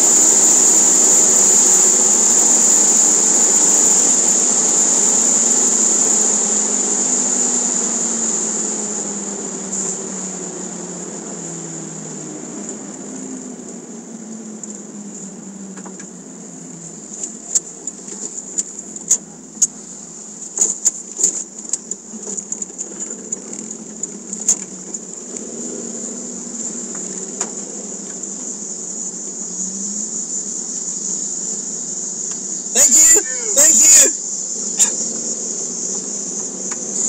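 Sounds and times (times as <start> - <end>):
car engine at low speed: 0.0 - 29.5
steady high-pitched whine: 0.0 - 37.0.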